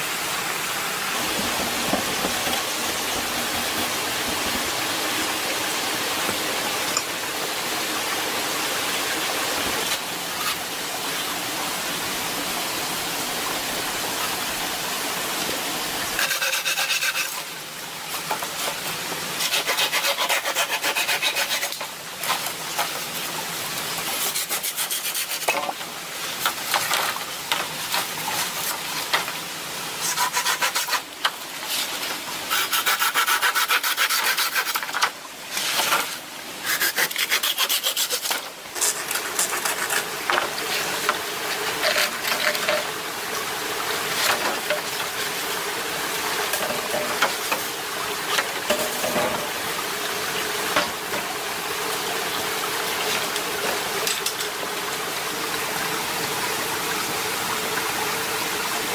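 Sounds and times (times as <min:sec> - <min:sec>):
hand saw cutting bamboo: 0:16.2 - 0:17.5, 0:19.4 - 0:22.5, 0:24.2 - 0:25.8, 0:30.0 - 0:31.1, 0:32.5 - 0:40.1, 0:41.7 - 0:42.8.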